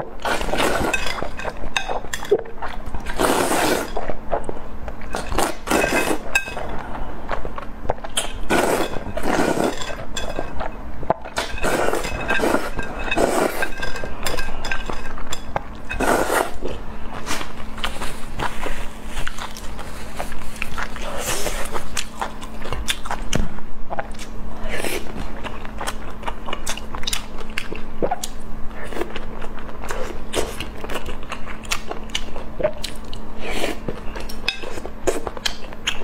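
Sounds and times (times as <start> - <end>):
wet noodle slurps: 3.1 - 3.9, 8.5 - 9.9.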